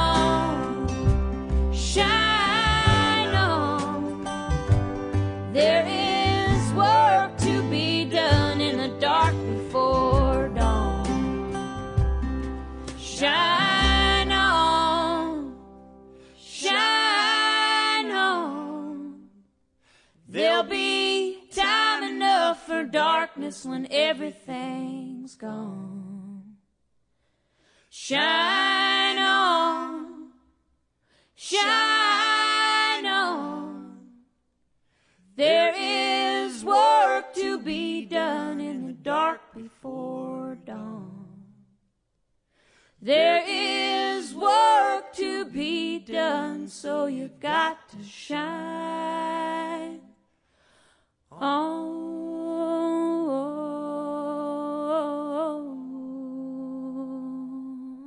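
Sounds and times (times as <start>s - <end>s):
woman singing unaccompanied: 0.0s - 0.9s, 1.8s - 4.3s, 5.5s - 11.1s, 13.0s - 15.6s, 16.4s - 19.3s, 20.3s - 26.6s, 28.0s - 30.4s, 31.4s - 34.2s, 35.4s - 41.6s, 43.0s - 50.1s, 51.4s - 58.0s.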